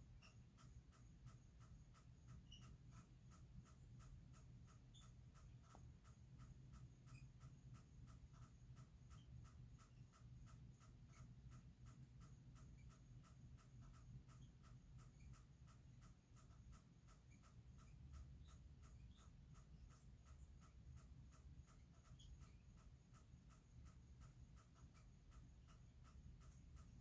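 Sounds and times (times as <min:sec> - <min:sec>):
regular pulsing call: 0:00.0 - 0:27.0
steady low hum: 0:00.0 - 0:27.0.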